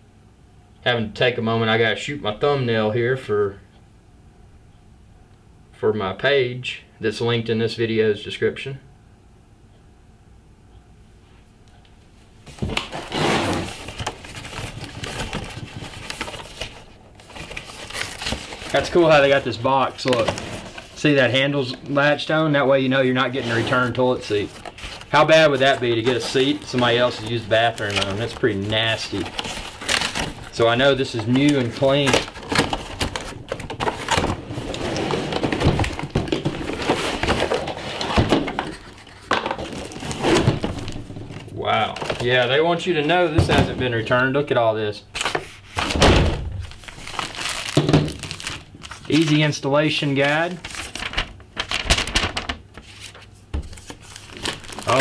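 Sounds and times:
cardboard scraping and rustling: 0:12.5 - 0:21.8, 0:23.1 - 0:44.0, 0:45.2 - 0:49.4, 0:50.5 - 0:55.0.

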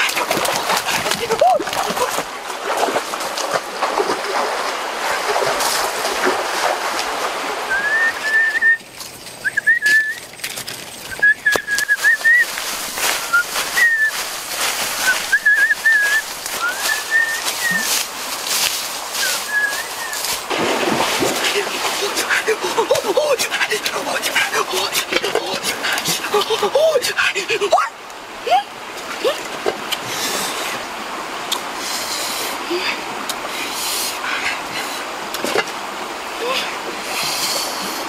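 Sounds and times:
dry leaves crackling underfoot: 0:08.8 - 0:20.6
bird whistling calls: 0:09.4 - 0:10.2, 0:15.0 - 0:17.9, 0:19.2 - 0:20.3.

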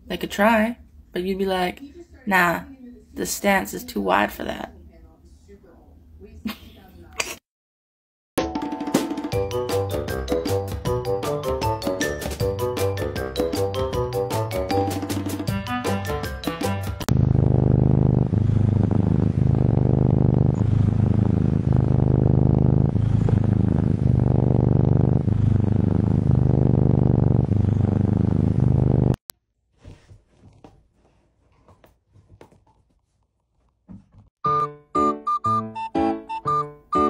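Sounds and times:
cat purring: 0:17.0 - 0:29.2.

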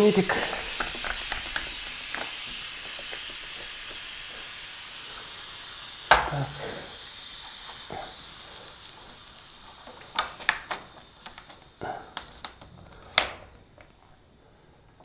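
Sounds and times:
air hissing from tyre valve: 0:00.0 - 0:15.0
sharp knock: 0:06.1 - 0:06.4.

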